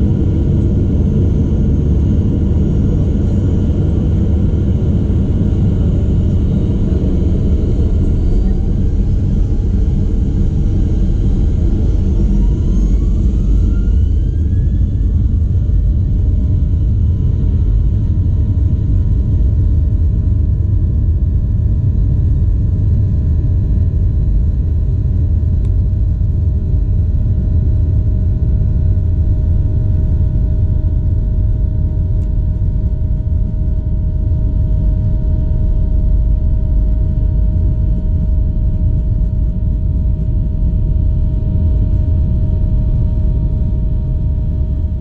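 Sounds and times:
airplane cabin rumble: 0.0s - 45.0s
faint steady hum: 0.0s - 45.0s.

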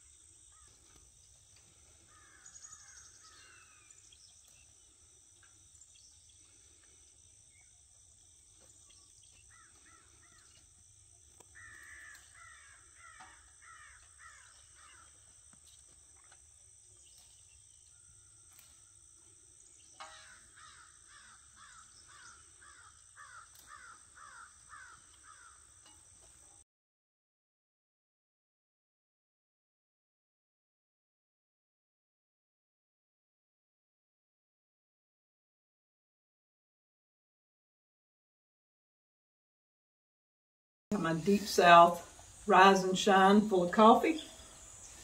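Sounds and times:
high insect drone: 0.0s - 26.6s, 40.9s - 45.0s
bird calling: 1.6s - 7.7s, 8.5s - 10.7s, 11.4s - 15.4s, 19.8s - 25.7s.

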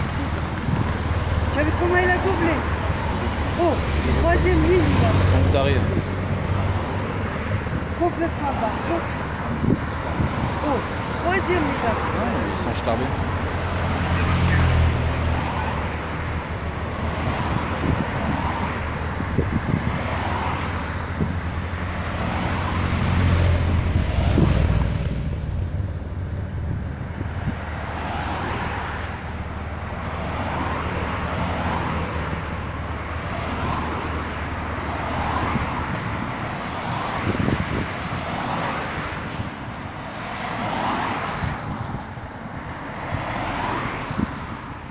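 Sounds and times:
race cars driving past: 0.0s - 7.8s, 21.7s - 26.3s.

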